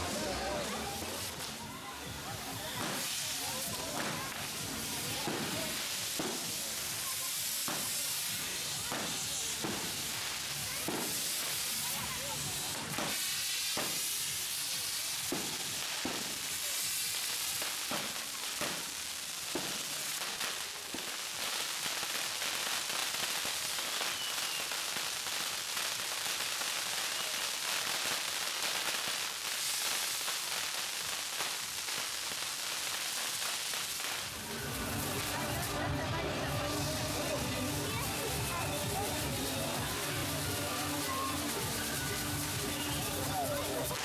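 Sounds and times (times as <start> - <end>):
firework wheels hissing: 0.0 - 44.0
firework sharp pops: 2.5 - 11.8, 12.7 - 34.4.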